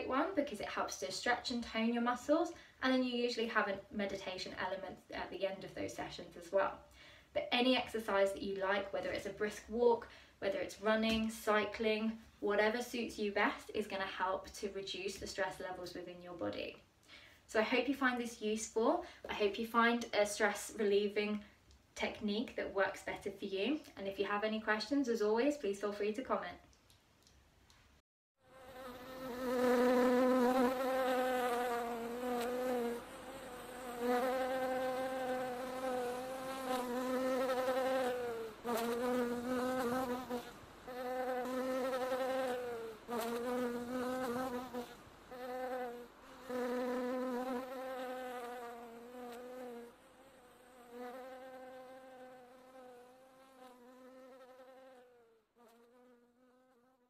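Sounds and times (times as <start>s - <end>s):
bee buzzing: 28.4s - 57.0s.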